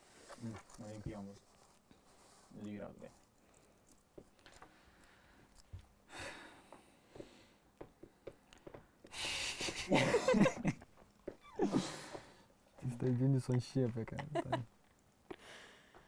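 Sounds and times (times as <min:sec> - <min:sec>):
faint breath: 0:04.5 - 0:07.7, 0:15.3 - 0:16.0
man laughing breathily: 0:09.1 - 0:10.8, 0:11.5 - 0:12.4, 0:14.1 - 0:14.7.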